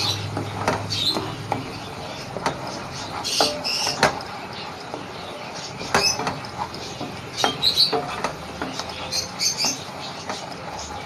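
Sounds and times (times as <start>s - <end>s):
wooden spatula scraping a pan: 0.1s - 11.0s.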